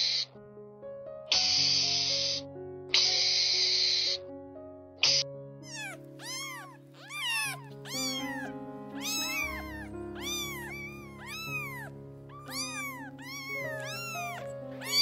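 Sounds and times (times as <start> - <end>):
cat hissing: 0.0 - 0.3, 1.3 - 4.2, 5.0 - 15.0
background music: 0.3 - 15.0
cat meowing: 1.3 - 2.1, 5.0 - 15.0.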